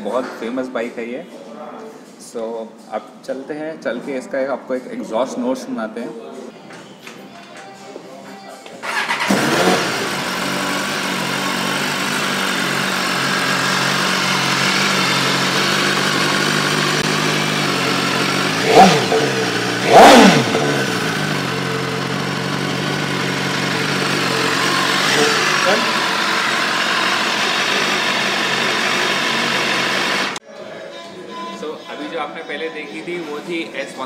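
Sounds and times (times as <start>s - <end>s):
motorcycle engine idling and revving: 8.8s - 30.4s.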